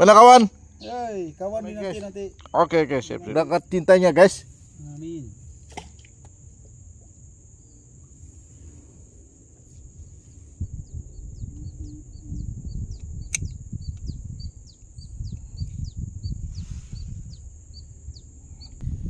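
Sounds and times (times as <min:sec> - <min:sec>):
high insect buzz: 0:00.0 - 0:19.0
sharp click: 0:13.0 - 0:14.1
microphone rubbing against clothing: 0:14.1 - 0:17.6.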